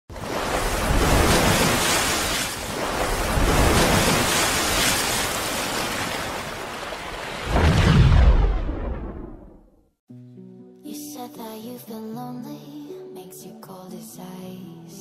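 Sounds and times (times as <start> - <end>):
ocean waves breaking: 0.1 - 9.7.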